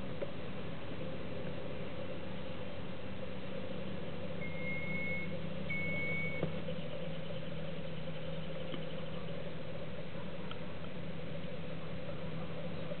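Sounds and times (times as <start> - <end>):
low background hum: 0.0 - 13.0
short high-pitched beeps: 4.4 - 6.4.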